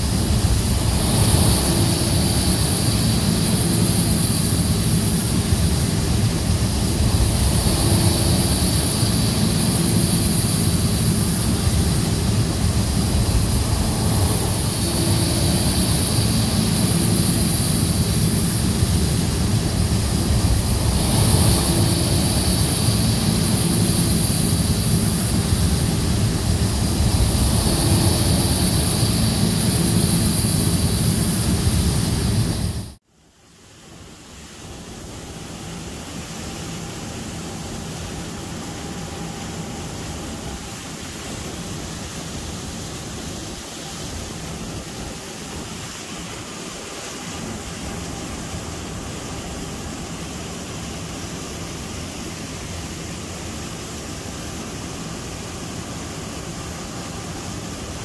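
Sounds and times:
high whine: 0.0s - 33.0s, 33.6s - 58.0s
loud mechanical drone: 0.0s - 33.0s.

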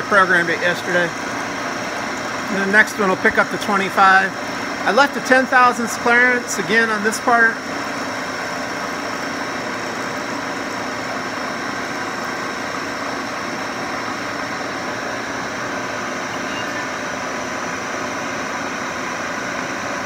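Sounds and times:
milling machine cutting metal: 0.0s - 20.0s.

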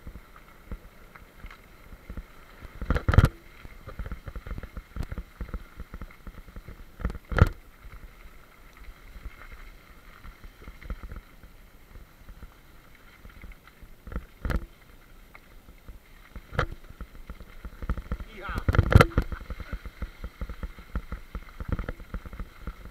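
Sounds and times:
bicycle tyres on gravel: 0.0s - 22.9s
bike knocks and rattles: 16.4s - 22.9s.

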